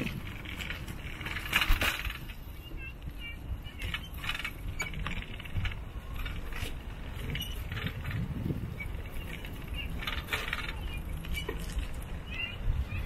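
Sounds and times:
bicycle rattling and clinking: 0.0 - 13.0
tyres rumbling: 0.0 - 13.0
wind: 0.0 - 13.0.

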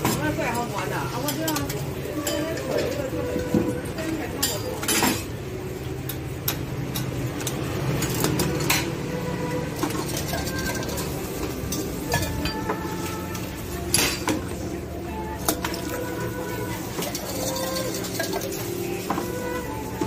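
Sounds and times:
metal utensils tapping griddle: 0.0 - 5.4, 6.0 - 9.0, 9.6 - 14.6, 15.4 - 20.0.

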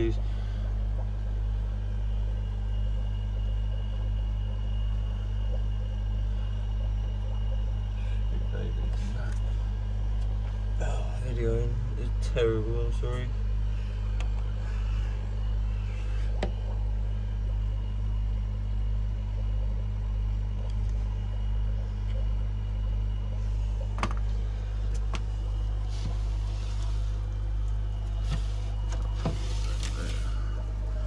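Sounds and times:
low electrical hum: 0.0 - 31.0.

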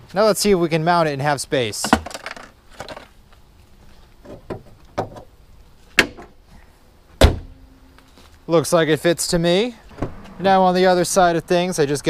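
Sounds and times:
car hood slamming shut: 7.2 - 7.6, 9.9 - 10.2.

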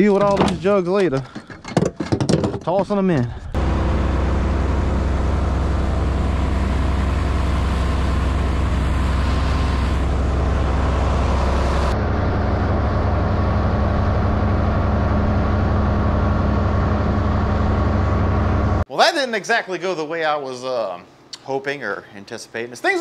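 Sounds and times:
boat motor droning: 3.6 - 18.8.

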